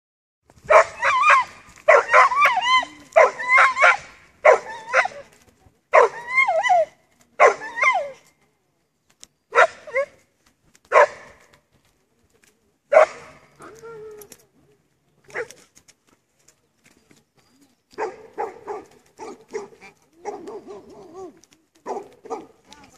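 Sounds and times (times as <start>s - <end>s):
dog yelping barks: 0.7s - 5.2s, 6.0s - 8.2s, 10.9s - 11.3s, 18.0s - 22.5s.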